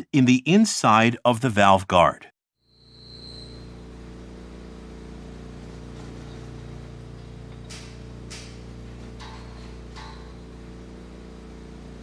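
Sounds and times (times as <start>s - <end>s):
machinery hum: 2.7s - 12.0s.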